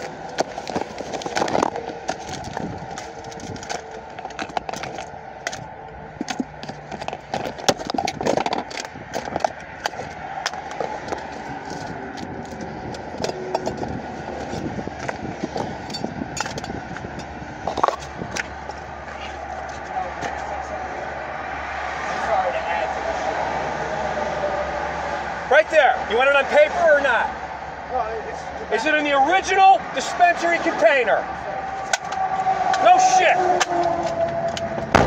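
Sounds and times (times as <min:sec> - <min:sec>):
phone handling clicks and rustles: 0:00.0 - 0:20.4
highway traffic noise: 0:00.0 - 0:35.0.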